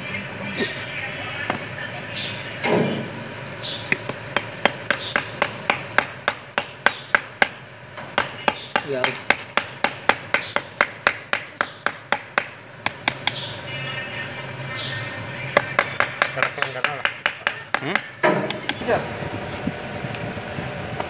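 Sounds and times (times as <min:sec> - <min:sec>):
small hammer tapping metal: 0:15.6 - 0:18.8.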